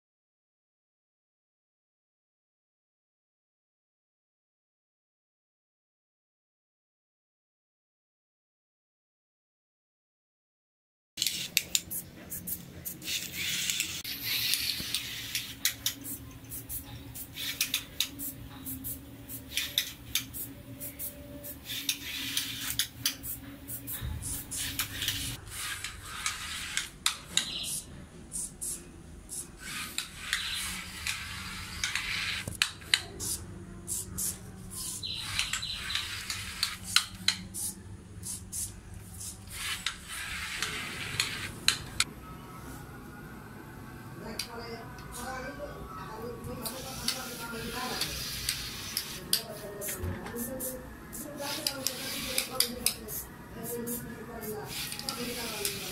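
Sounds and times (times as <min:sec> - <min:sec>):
toy robot car motors whirring: 0:11.2 - 0:42.0, 0:46.6 - 0:55.9.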